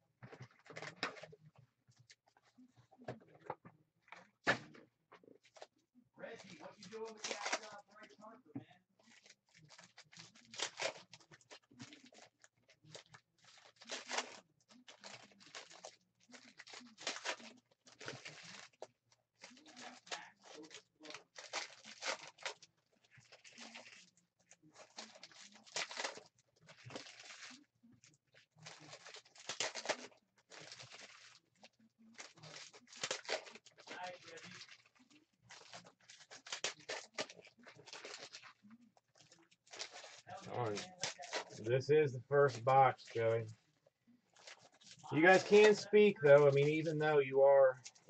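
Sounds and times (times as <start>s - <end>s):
cards rustling: 5.5s - 8.2s, 28.6s - 43.6s, 44.3s - 48.0s
foil wrappers tearing and crinkling: 5.5s - 8.4s, 9.0s - 41.7s, 44.3s - 48.0s.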